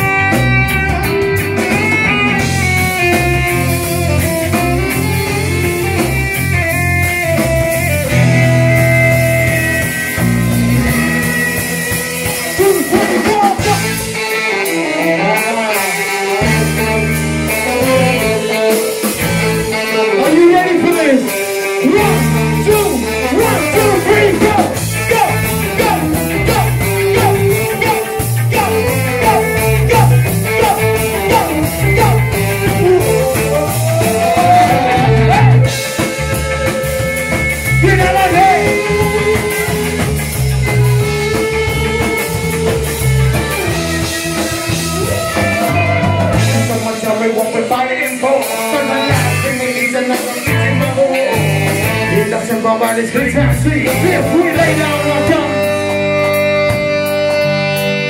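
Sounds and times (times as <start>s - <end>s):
bass and drums: 0.0s - 58.0s
electric guitar: 0.0s - 58.0s
person singing into microphone: 14.6s - 36.4s, 45.0s - 56.1s.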